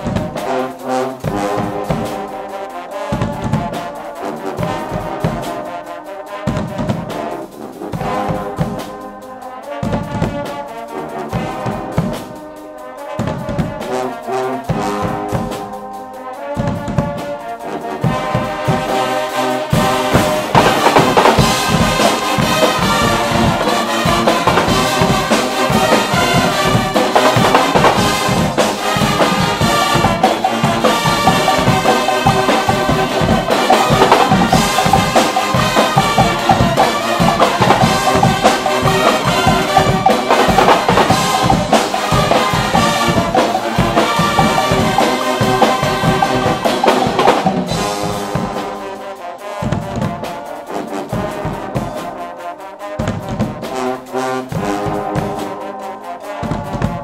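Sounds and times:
brass band playing: 0:00.0 - 0:57.0
drum kit with cymbals: 0:00.0 - 0:57.0.

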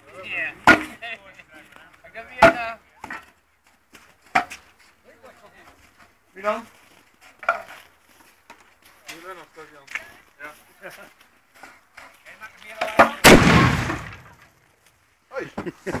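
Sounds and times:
men's voices: 0:00.0 - 0:03.3, 0:05.0 - 0:06.8, 0:15.3 - 0:16.0
sharp bangs from milk churns: 0:13.0 - 0:14.4.

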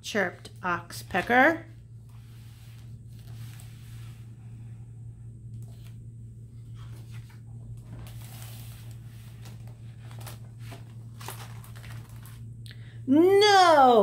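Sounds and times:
steady low hum: 0:00.0 - 0:14.0
book page turning: 0:06.6 - 0:12.5.

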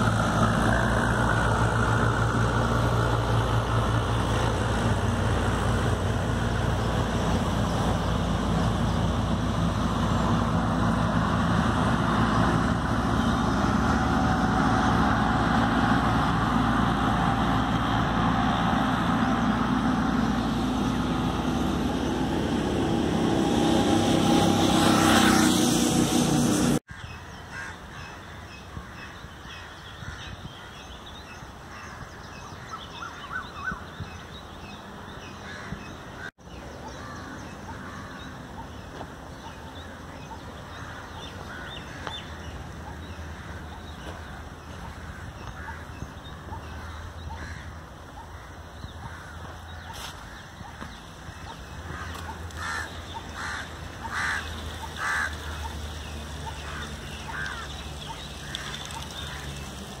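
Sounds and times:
low rumble of road traffic: 0:00.0 - 1:00.0
crows cawing: 0:26.9 - 0:30.7, 0:35.4 - 0:36.3, 0:36.9 - 0:38.4, 0:40.7 - 0:42.6, 0:43.2 - 0:46.0, 0:46.6 - 0:55.8, 0:56.4 - 0:59.6.

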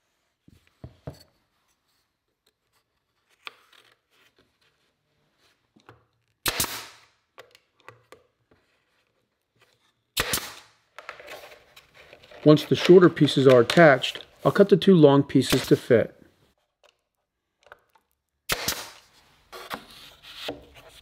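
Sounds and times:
nail gun shots: 0:06.4 - 0:07.1, 0:10.2 - 0:10.7, 0:15.5 - 0:15.8, 0:18.5 - 0:19.1.

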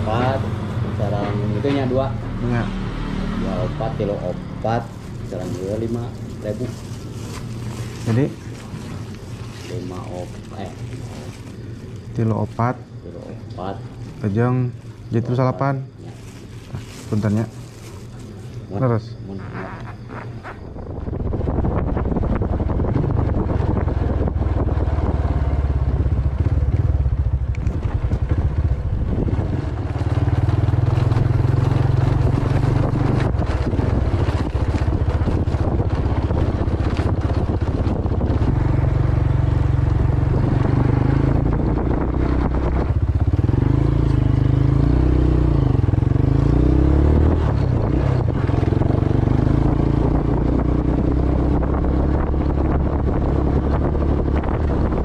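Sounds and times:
motorboat engine running: 0:04.7 - 0:13.0, 0:19.6 - 0:55.0
wind buffeting microphone: 0:20.4 - 0:55.0.

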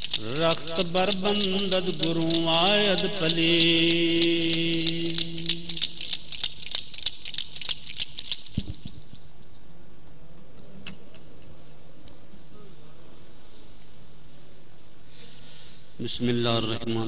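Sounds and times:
rapid clicking and rattling: 0:00.0 - 0:09.2.

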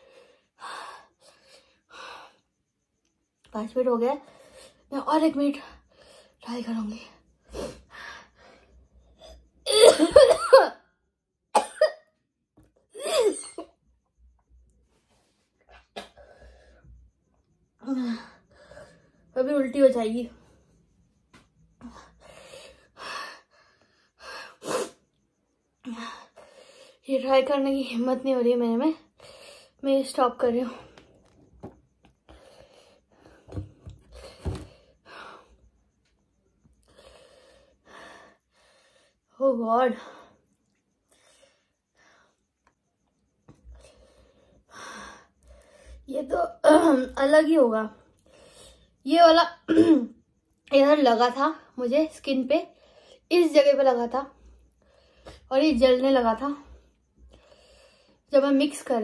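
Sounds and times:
woman coughing: 0:09.7 - 0:10.8, 0:11.6 - 0:12.1, 0:13.0 - 0:13.7, 0:49.7 - 0:50.2.

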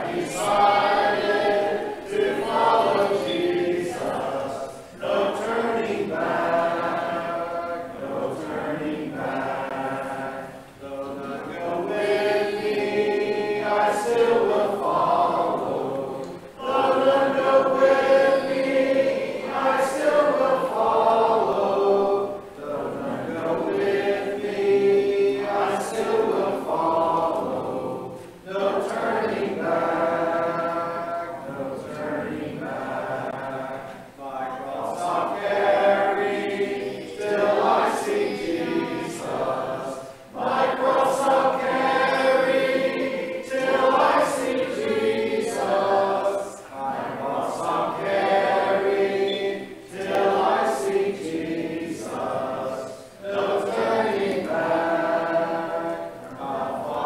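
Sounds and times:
congregation singing a hymn: 0:00.0 - 0:57.0.

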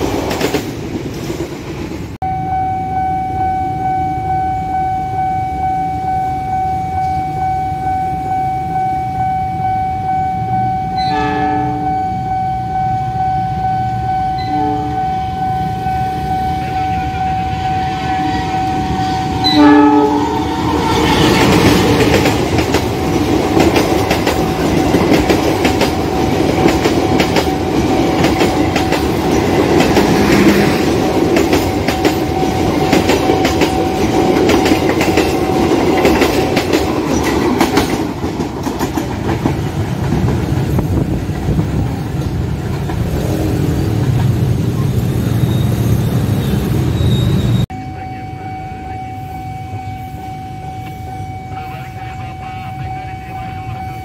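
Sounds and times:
train wheels knocking on rail joints: 0:00.0 - 0:02.0, 0:21.3 - 0:44.4
level crossing warning tone: 0:02.2 - 0:38.8, 0:47.7 - 0:54.0
locomotive horn blast: 0:10.9 - 0:12.8, 0:13.9 - 0:21.6.

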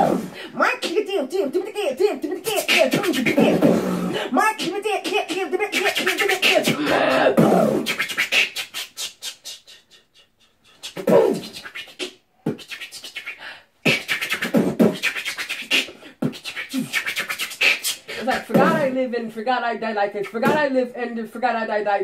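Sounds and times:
hummed vocal glides: 0:00.0 - 0:04.6, 0:05.7 - 0:13.2
beatboxing mouth clicks: 0:00.0 - 0:18.8.

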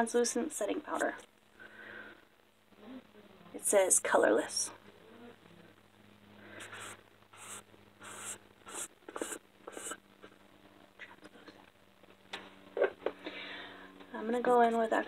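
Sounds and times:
scratchy rubbing of container: 0:06.6 - 0:10.0.

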